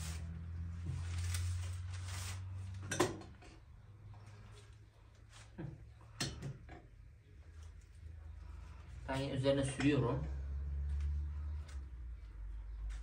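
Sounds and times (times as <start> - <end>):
baking paper rustling: 0.0 - 2.8
low steady hum: 0.0 - 13.0.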